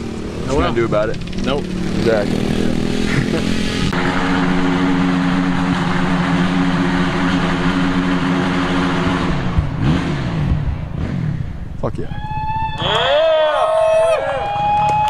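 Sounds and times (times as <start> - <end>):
dirt bike engine revving: 0.0 - 11.7.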